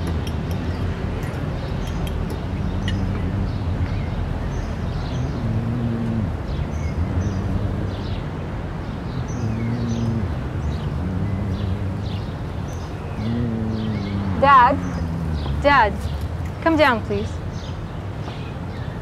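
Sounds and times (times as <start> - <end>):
held low tones: 0.0 - 8.2, 9.2 - 17.4
steady low rumble: 0.0 - 17.4
birds chirping: 0.0 - 19.0.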